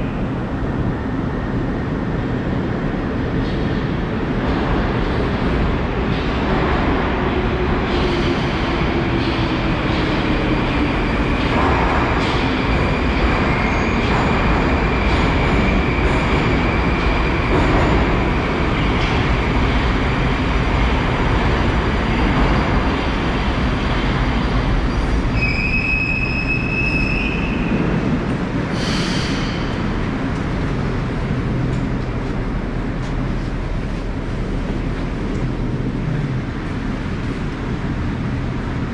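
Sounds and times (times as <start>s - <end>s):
train braking to a stop: 24.9s - 28.0s, 28.7s - 29.9s
high wheel squeal: 25.3s - 27.8s
train doors hissing open: 28.6s - 29.9s.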